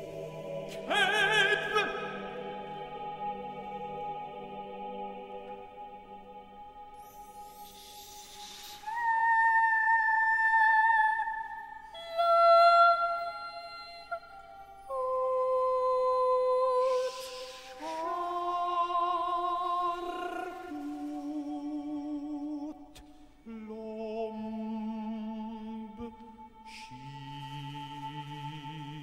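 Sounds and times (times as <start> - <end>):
baritone voice singing: 0.0 - 4.2.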